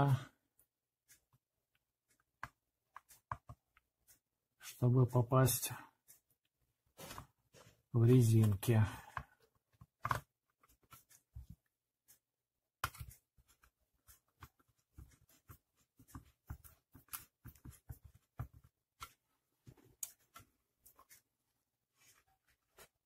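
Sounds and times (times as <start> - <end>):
plastic housing clicks and knocks: 9.7 - 10.3.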